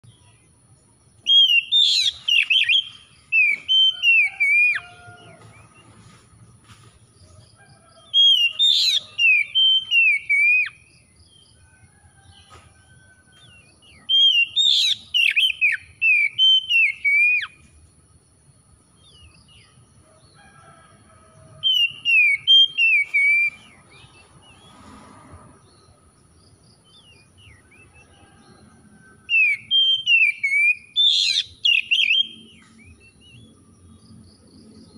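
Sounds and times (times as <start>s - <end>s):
bird singing whistled notes: 1.2s - 5.8s, 8.2s - 11.0s, 13.4s - 17.7s, 21.7s - 24.7s, 29.2s - 33.6s.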